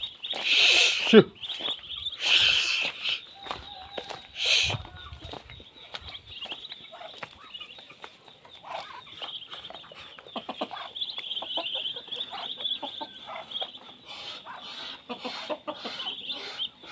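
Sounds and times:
ducklings peeping: 0.0 - 16.9.

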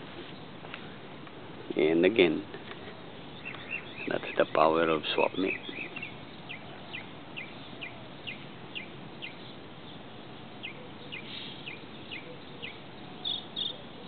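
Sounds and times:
steady background hiss: 0.0 - 14.0
small bird chirping: 2.8 - 14.0.

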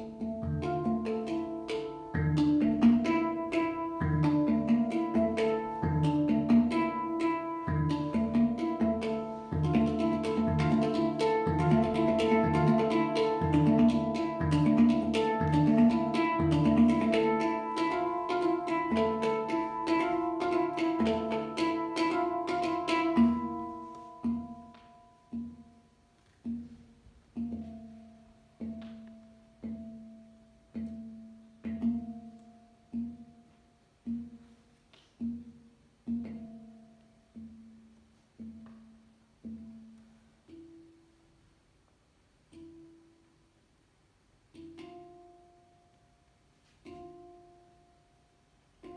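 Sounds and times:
handpan ringing notes: 0.0 - 41.4, 42.5 - 43.5, 44.5 - 48.9.

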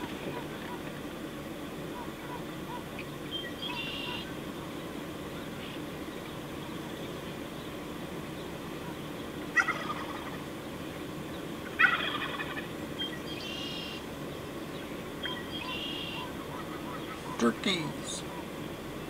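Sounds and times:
wild turkey gobbling: 1.9 - 4.3, 8.7 - 10.5, 11.6 - 14.0, 15.2 - 18.6
higher turkey calls: 1.9 - 4.4, 8.8 - 10.5, 11.6 - 14.1, 15.2 - 18.6.

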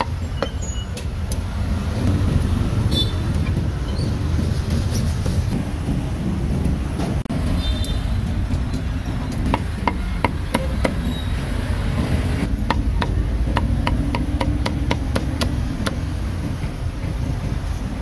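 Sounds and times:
low street rumble: 0.0 - 18.0
cleaver chopping on wooden block: 9.4 - 11.0, 12.6 - 16.1.

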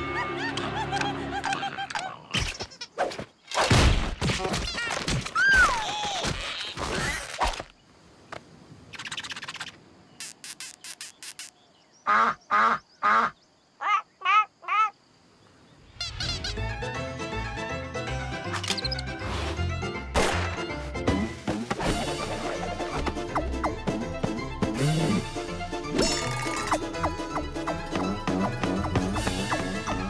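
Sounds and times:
quick squeaks: 8.9 - 11.6.

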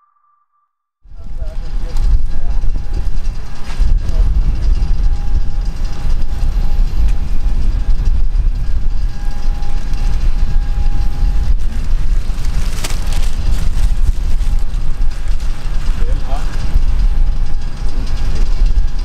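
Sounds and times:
faint jet engine whine: 1.1 - 19.0
jet engines rumbling: 1.1 - 19.0.

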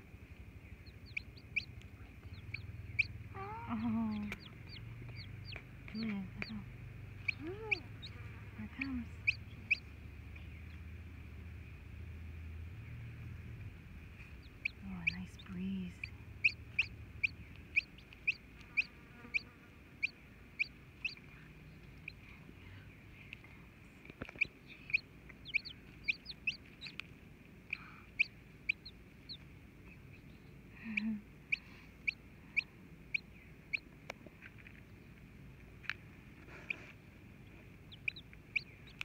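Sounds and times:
chick peeping: 0.6 - 10.8, 14.1 - 22.2, 24.2 - 33.9, 36.4 - 39.0
hen clucking: 0.8 - 10.0, 14.2 - 22.2, 24.2 - 29.5, 30.8 - 33.9, 36.4 - 39.0.

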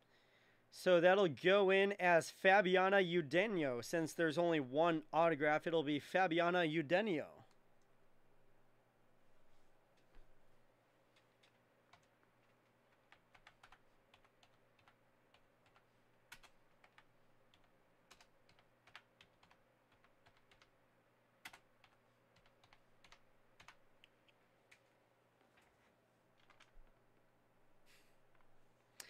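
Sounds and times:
typing on computer keyboard: 11.1 - 20.8, 21.4 - 24.8, 26.4 - 27.0.

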